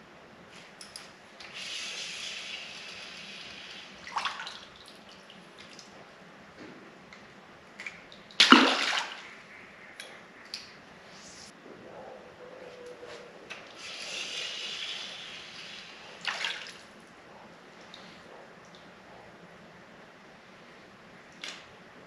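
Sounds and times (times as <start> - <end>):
water splashing: 2.4 - 6.0, 7.7 - 10.8, 13.6 - 17.1
fish splashing into water: 7.8 - 9.4.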